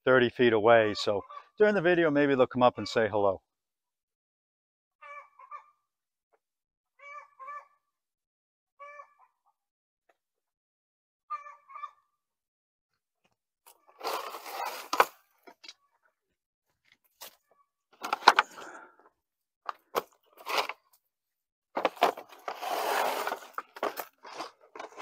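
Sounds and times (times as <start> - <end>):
wooden boards dragged and scraping: 13.9 - 15.2, 18.0 - 18.8, 20.3 - 20.8, 21.8 - 25.0.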